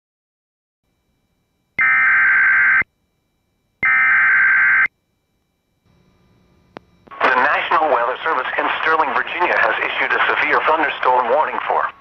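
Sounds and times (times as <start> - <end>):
digital data tone bursts: 3.8 - 4.9.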